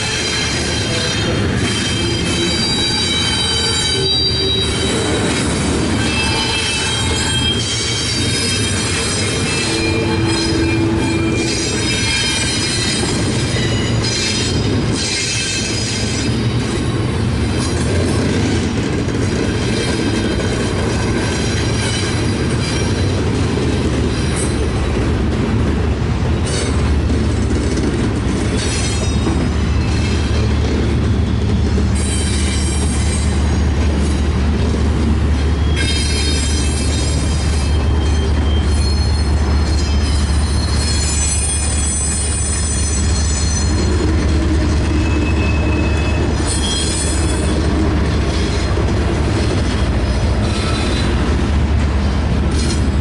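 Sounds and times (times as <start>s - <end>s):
high-pitched wheel squeal: 0.0s - 5.3s, 6.0s - 16.3s, 35.6s - 47.7s, 50.4s - 51.2s
train wheels rumbling on rails: 0.0s - 53.0s.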